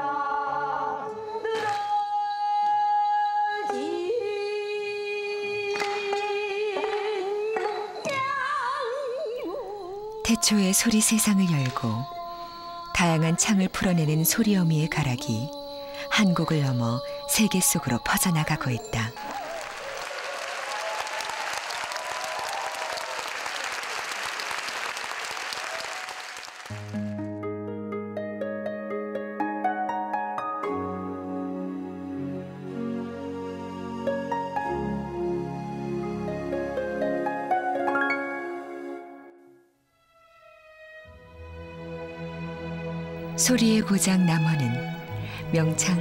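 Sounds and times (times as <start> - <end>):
woman singing: 0.0 - 19.2, 45.4 - 46.0
audience applauding: 18.8 - 27.1.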